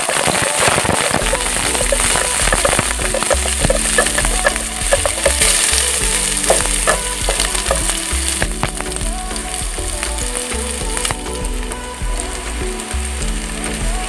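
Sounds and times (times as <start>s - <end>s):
onion and garlic sizzling in oil: 0.0s - 9.5s.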